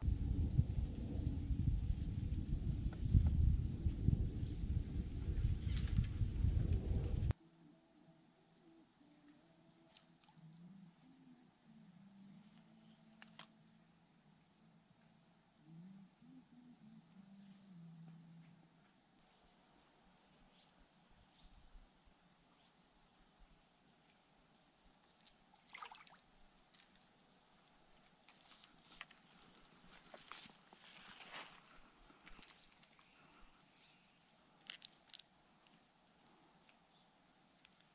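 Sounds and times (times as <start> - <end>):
loud low rumble: 0.0 - 7.3
insects chirring: 0.0 - 37.9.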